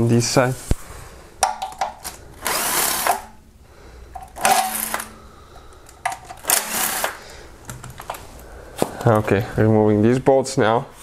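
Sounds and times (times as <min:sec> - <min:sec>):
cordless ratchet spinning bolts: 0:06.4 - 0:07.2.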